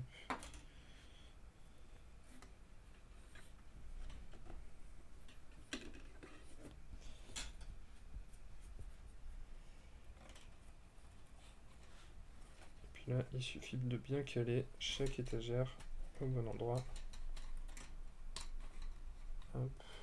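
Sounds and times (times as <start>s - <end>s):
thin wooden parts tapping and scraping: 2.3s - 7.8s, 10.1s - 13.0s, 14.8s - 19.7s.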